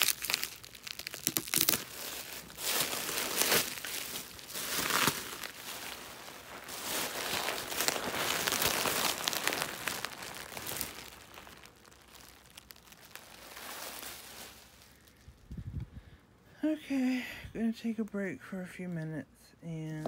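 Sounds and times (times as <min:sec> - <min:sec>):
bubble wrap crackling: 0:00.0 - 0:15.8.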